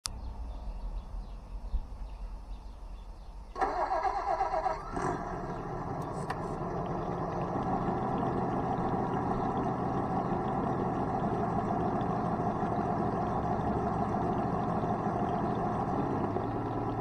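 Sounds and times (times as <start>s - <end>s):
simulated engine starting: 3.5s - 17.0s
simulated engine running: 3.6s - 17.0s.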